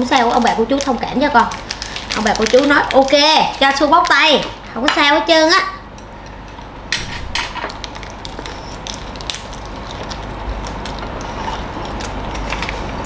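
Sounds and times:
close chewing of crispy food: 0:00.2 - 0:04.0, 0:07.9 - 0:13.0.

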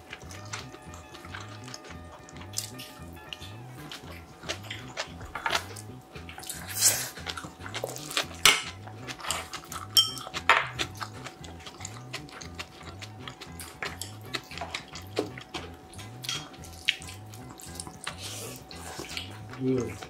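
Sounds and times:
soft background music: 0:00.0 - 0:20.0
spoon clinking on metal bowl: 0:10.0 - 0:10.7.

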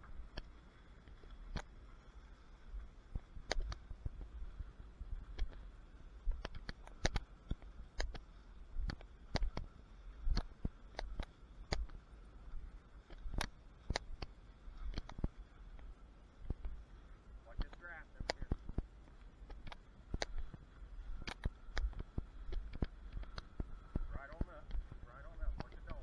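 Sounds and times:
wind rumble on microphone: 0:02.5 - 0:26.0.

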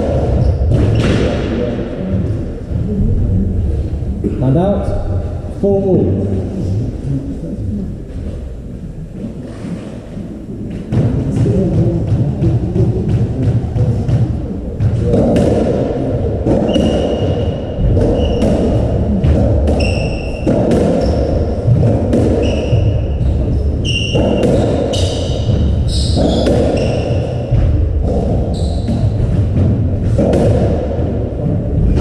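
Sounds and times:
shoe squeaks on wooden floor: 0:16.6 - 0:18.8, 0:19.7 - 0:21.6, 0:22.3 - 0:27.5, 0:28.5 - 0:29.1.

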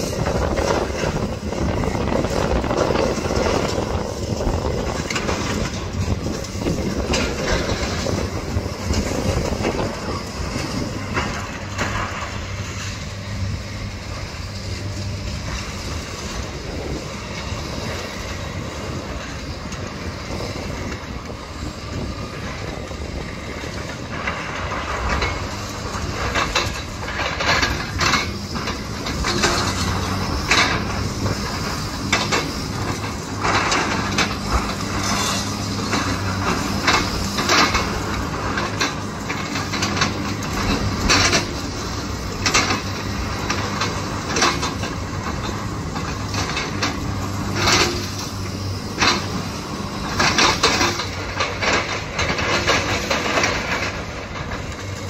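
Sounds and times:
excavator diesel engines running: 0:00.0 - 0:55.0
concrete rubble clattering and scraping: 0:23.8 - 0:55.0.

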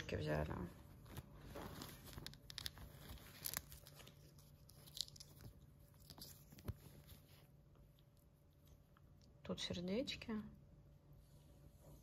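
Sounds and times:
faint low hum: 0:00.0 - 0:12.0
soft packaging rustles: 0:00.2 - 0:09.2.

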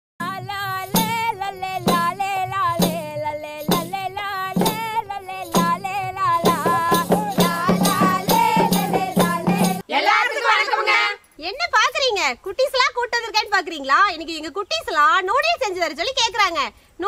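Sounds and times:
wavering melody over percussion beat: 0:00.2 - 0:09.8.

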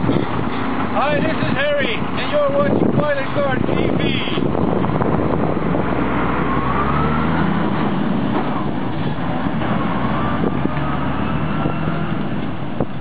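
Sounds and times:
truck diesel engine pulling away: 0:04.4 - 0:13.0.

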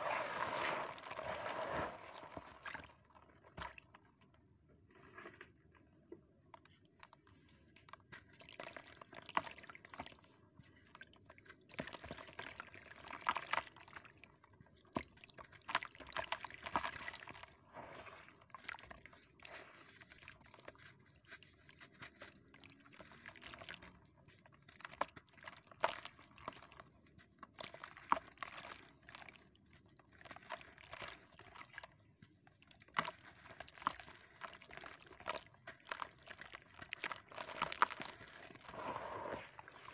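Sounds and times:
water splashes and drips: 0:00.0 - 0:04.1.

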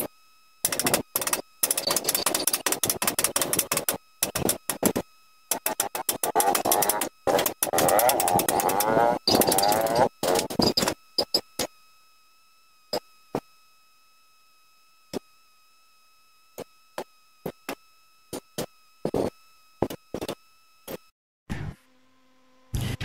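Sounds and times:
faint high-pitched whine: 0:00.0 - 0:23.0
sharp metal knocks and clicks: 0:00.6 - 0:11.7.

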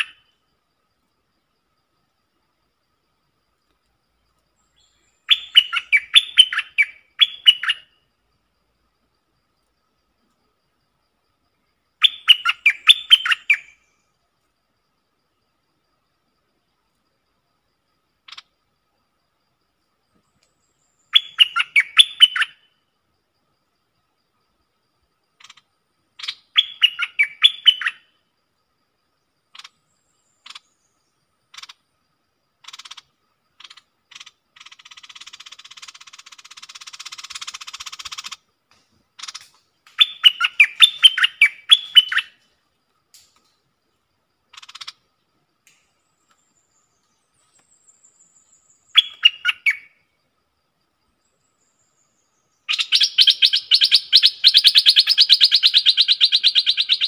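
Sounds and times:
bird call notes: 0:39.2 - 0:42.4, 0:48.5 - 0:50.0.

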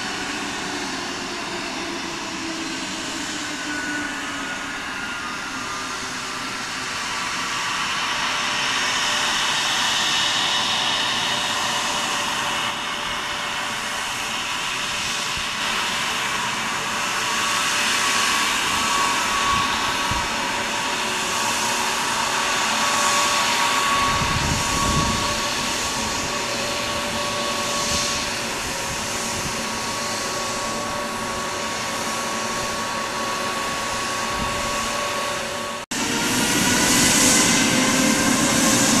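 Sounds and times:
jet engine whine: 0:00.0 - 0:39.0.

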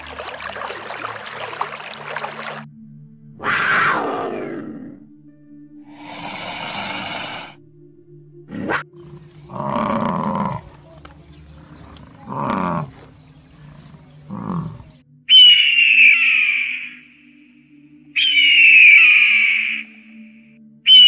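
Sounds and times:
faint steady drone: 0:02.4 - 0:03.6, 0:04.4 - 0:09.9, 0:16.9 - 0:18.2
cougar screaming: 0:03.4 - 0:04.8, 0:14.3 - 0:17.0, 0:18.2 - 0:19.9
bison calling: 0:03.4 - 0:05.0, 0:08.5 - 0:10.8, 0:11.6 - 0:17.0, 0:18.2 - 0:20.0
eagle's shrill call: 0:15.3 - 0:17.0, 0:18.2 - 0:20.0.

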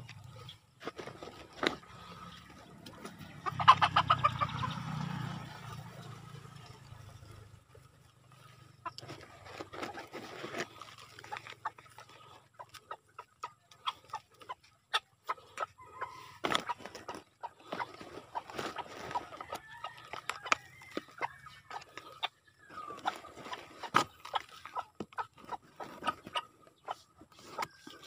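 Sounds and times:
chickens clucking: 0:00.0 - 0:28.0
soil crackling in plastic pots: 0:06.4 - 0:14.5.

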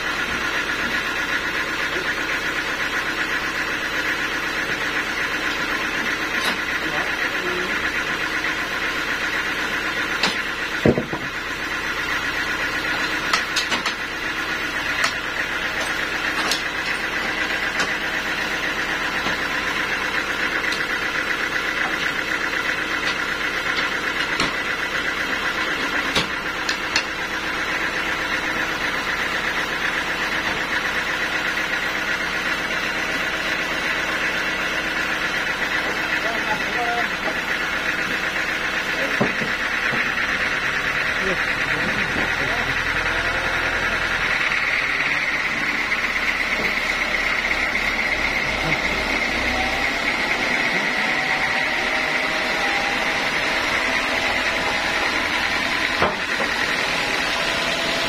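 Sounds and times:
band saw drone: 0:14.1 - 0:58.0.

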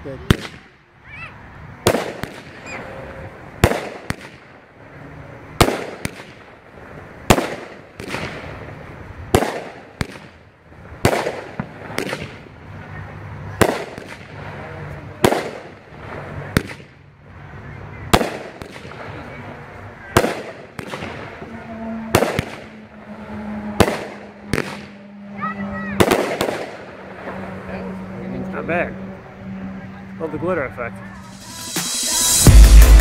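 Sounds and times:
fireworks bangs: 0:00.2 - 0:00.8, 0:01.8 - 0:04.6, 0:05.5 - 0:06.6, 0:07.2 - 0:17.0, 0:18.1 - 0:27.6, 0:31.2 - 0:33.0
hiss of burning stars: 0:31.2 - 0:33.0.

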